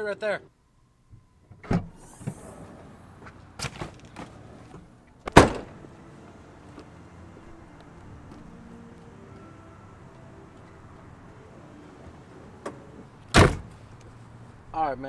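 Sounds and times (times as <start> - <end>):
car door slamming: 1.6 - 5.8, 12.0 - 13.8
car door latch click: 5.2 - 5.7, 12.6 - 13.8.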